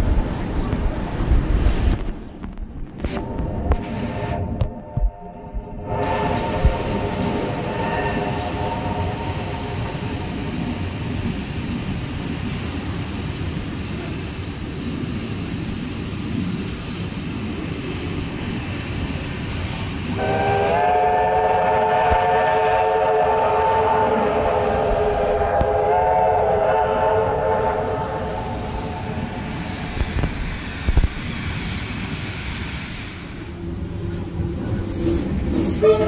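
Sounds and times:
train rumbling on track: 0.0s - 36.0s
locomotive horn chord: 20.2s - 28.5s.

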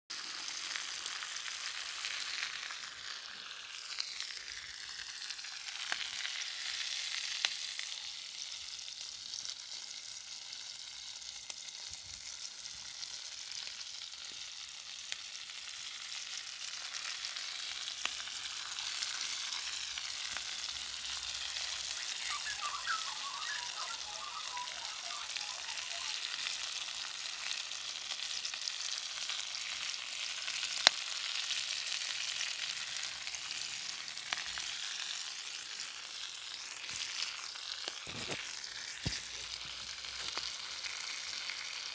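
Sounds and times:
food sizzling in pans: 0.1s - 41.9s.

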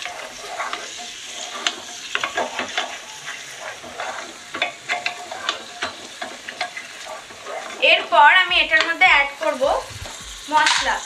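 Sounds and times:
spatula scraping a pot: 0.0s - 9.0s
onions sizzling in a pot: 0.0s - 11.0s.

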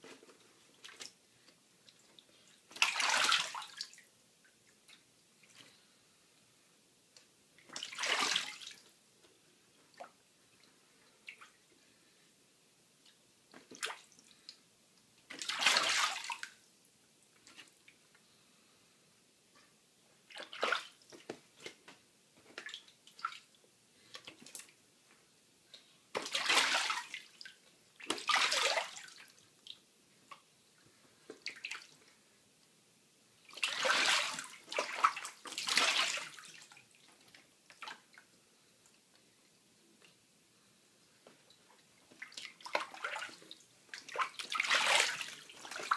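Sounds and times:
goose splashing water: 42.2s - 45.9s.

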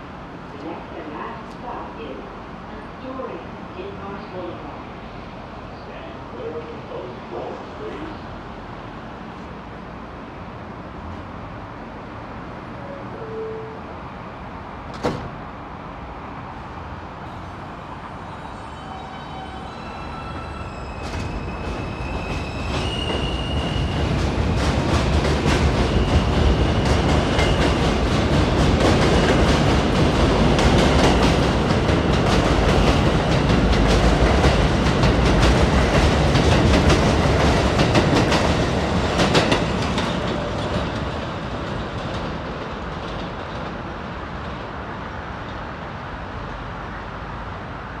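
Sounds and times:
subway train propulsion whine: 0.0s - 48.0s.

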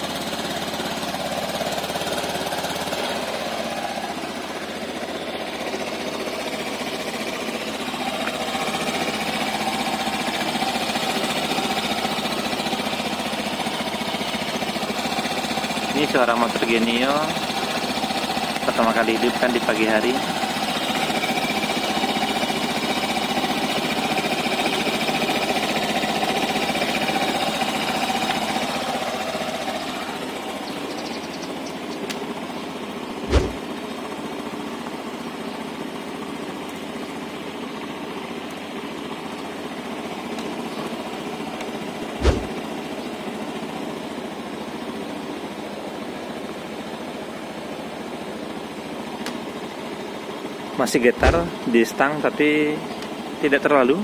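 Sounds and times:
scooter engine idling: 0.0s - 54.0s
sharp knocks: 33.2s - 33.6s, 42.2s - 42.6s, 51.2s - 51.5s.

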